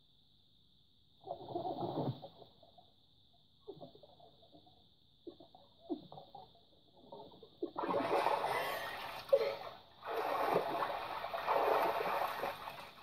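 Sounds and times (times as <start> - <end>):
pool water splashing: 7.8 - 13.0
water pouring off swimmer: 7.8 - 13.0.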